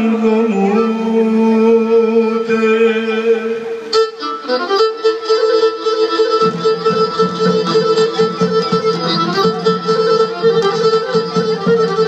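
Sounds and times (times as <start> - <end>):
bowed lyra dance tune: 4.0 - 12.0.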